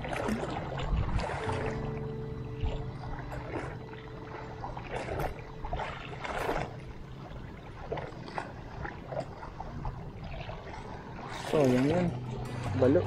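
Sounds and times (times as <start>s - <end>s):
water lapping and splashing: 0.0s - 13.0s.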